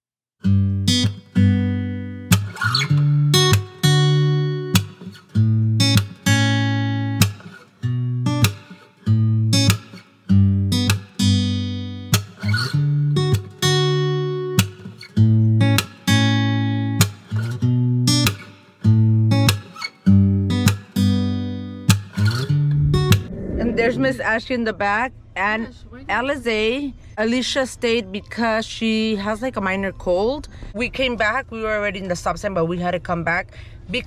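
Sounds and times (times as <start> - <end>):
guitar strumming chords: 0.4 - 24.2.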